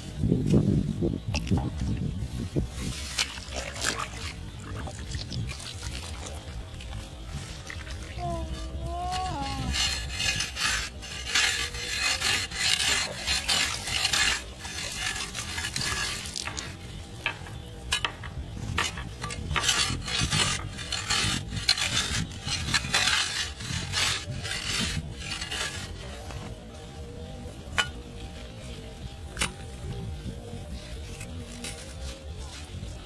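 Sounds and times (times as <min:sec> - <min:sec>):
metal shovel digging wet clay: 0:02.8 - 0:26.6, 0:30.9 - 0:33.0.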